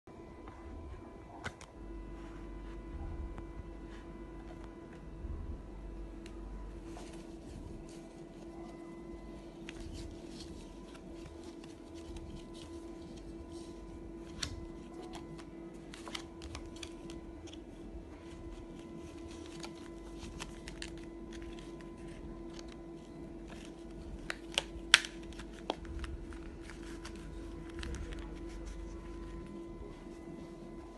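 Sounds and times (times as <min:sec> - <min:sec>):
steady hum: 0:00.1 - 0:30.9
card rustling and clicking: 0:06.3 - 0:30.9.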